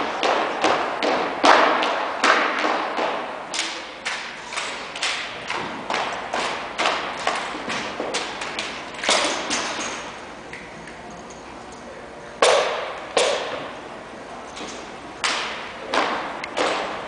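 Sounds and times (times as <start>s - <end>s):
rifles slapped and caught: 0.2s - 10.1s, 12.4s - 13.7s, 14.6s - 17.0s.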